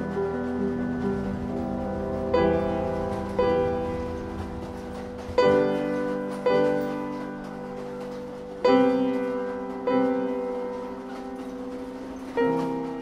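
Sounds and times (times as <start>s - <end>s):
piano chords ringing: 0.0s - 13.0s.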